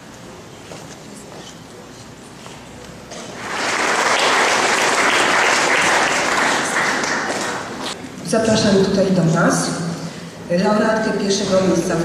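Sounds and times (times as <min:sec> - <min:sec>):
audience applauding: 0:03.4 - 0:08.0.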